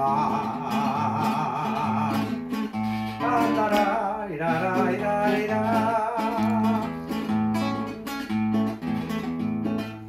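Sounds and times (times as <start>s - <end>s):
acoustic guitar strumming: 0.0s - 10.0s
man singing held note: 3.2s - 6.9s.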